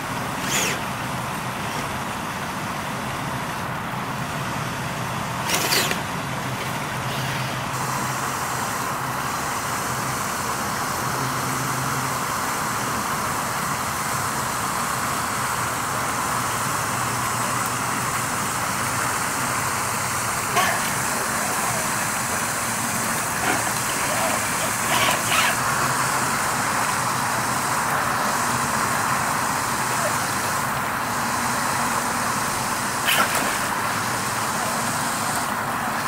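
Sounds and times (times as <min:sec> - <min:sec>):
toy car motor whirring: 0:00.4 - 0:00.9, 0:05.4 - 0:06.0, 0:23.4 - 0:25.7
rain and water hissing: 0:12.3 - 0:36.0.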